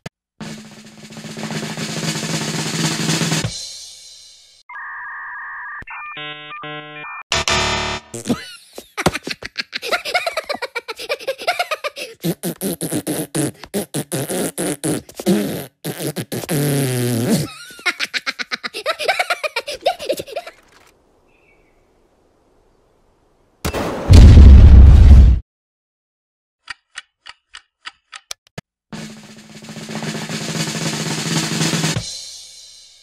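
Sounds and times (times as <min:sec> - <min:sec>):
cartoon voice laughing: 0:08.2 - 0:15.6, 0:17.2 - 0:20.9
blowing raspberries: 0:11.0 - 0:17.6.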